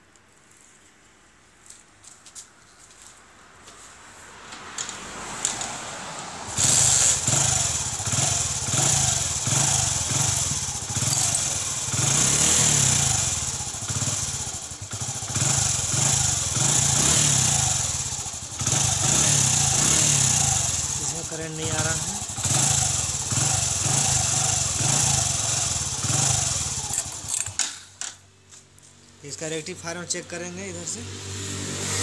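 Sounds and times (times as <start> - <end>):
motorcycle engine starting and idling: 6.4 - 28.3.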